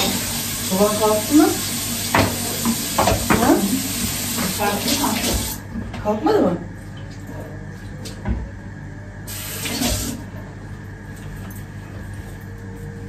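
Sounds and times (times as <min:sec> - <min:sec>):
tap water running: 0:00.0 - 0:05.9, 0:09.3 - 0:10.3.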